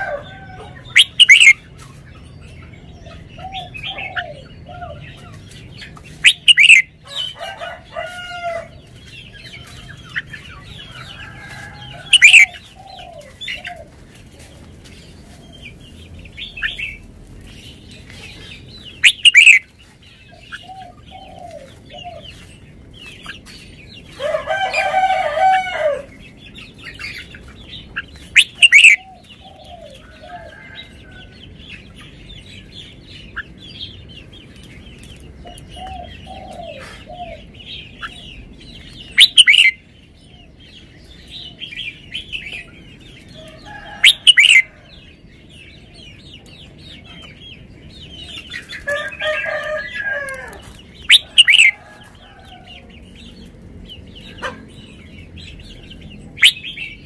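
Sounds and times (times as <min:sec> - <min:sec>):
faint chirping of birds: 0:00.0 - 0:57.0
bulbul calling: 0:00.9 - 0:01.6, 0:06.2 - 0:07.3, 0:12.1 - 0:13.7, 0:19.0 - 0:19.7, 0:28.0 - 0:29.8, 0:39.1 - 0:39.8, 0:51.1 - 0:51.8, 0:56.4 - 0:57.0.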